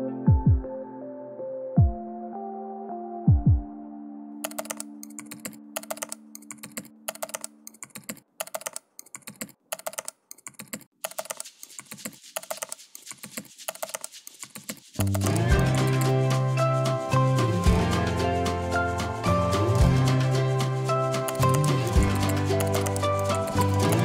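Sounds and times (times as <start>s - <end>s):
keyboard key clicks: 4.4s - 15.5s.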